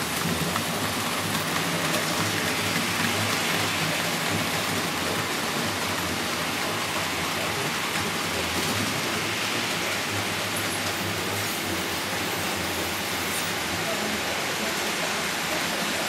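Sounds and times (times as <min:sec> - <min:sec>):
model train wheels rattling on rails: 0:00.0 - 0:16.0.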